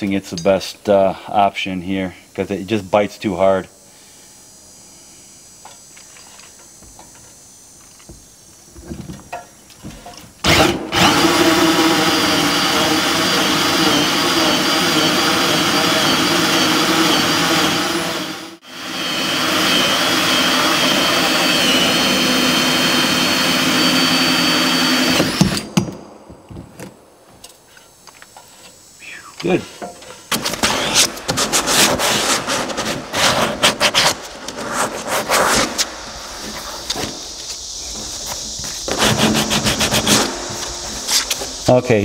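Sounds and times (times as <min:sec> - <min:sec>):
cordless drill whining: 0:10.4 - 0:25.9.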